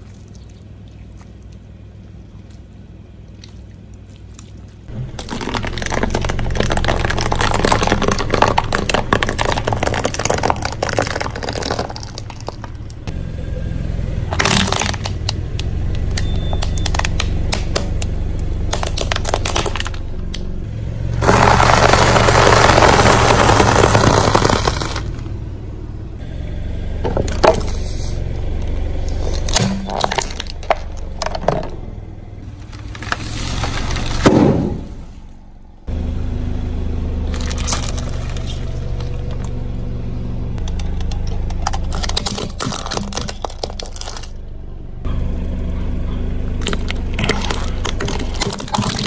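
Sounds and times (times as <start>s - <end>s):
tyre crunching debris on concrete: 4.9s - 13.0s, 21.2s - 25.2s, 29.1s - 31.7s, 37.3s - 39.6s, 40.9s - 44.4s, 46.6s - 49.0s
car engine running: 4.9s - 49.0s.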